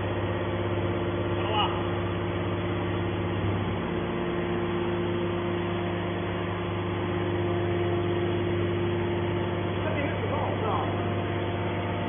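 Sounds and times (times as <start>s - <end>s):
hydraulic power unit humming: 0.0s - 12.0s.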